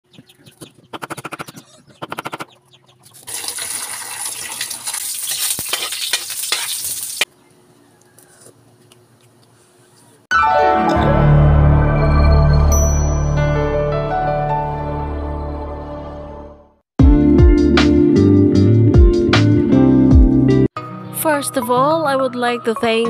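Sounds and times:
tap water pouring into metal bowl: 3.2s - 6.5s.

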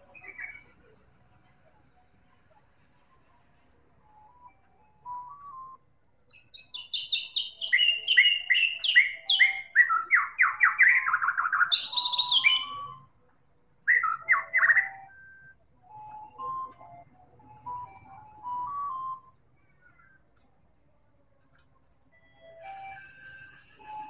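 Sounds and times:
bird singing whistled notes: 0.0s - 0.8s, 4.0s - 13.1s, 13.9s - 20.2s.

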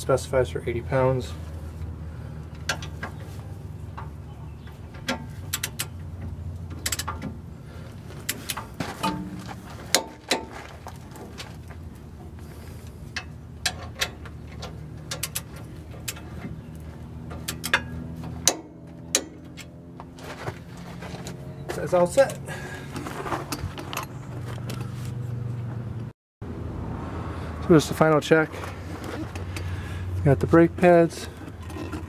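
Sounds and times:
metallic clicks and knocks of tools: 4.9s - 6.0s, 6.7s - 7.3s, 13.1s - 16.3s, 17.3s - 19.7s.

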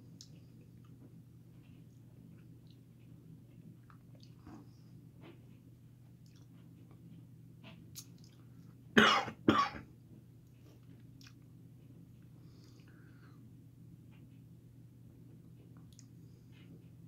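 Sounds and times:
man coughing: 9.0s - 9.9s.

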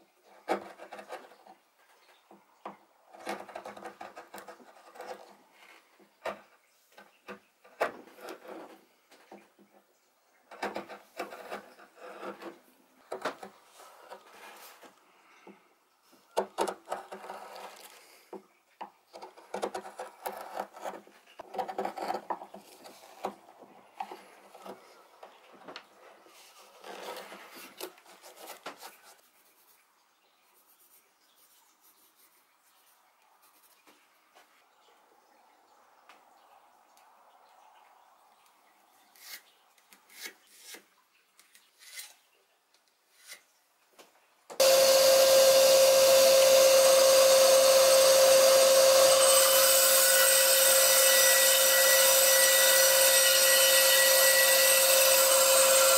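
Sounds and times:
gouge scraping wood: 0.4s - 1.6s, 3.1s - 5.4s, 7.7s - 8.8s, 10.5s - 14.9s, 16.5s - 18.0s, 19.2s - 23.4s, 26.4s - 29.7s.

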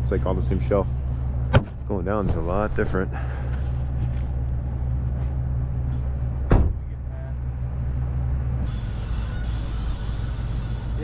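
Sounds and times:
engine running at low revs: 0.0s - 11.0s
sharp knock: 6.5s - 6.8s.

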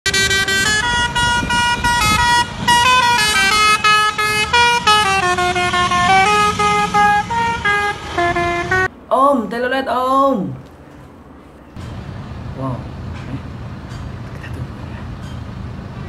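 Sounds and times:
multi-tone truck horn tune: 0.1s - 8.9s
low truck rumble: 0.1s - 9.1s, 10.5s - 16.0s.

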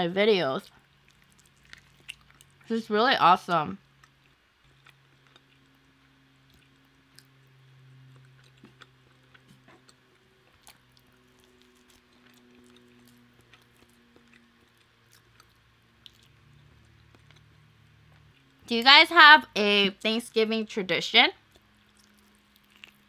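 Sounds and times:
faint low hum: 0.0s - 23.0s
chewing and wet mouth clicks: 1.0s - 2.7s, 4.0s - 18.6s, 21.4s - 23.0s.

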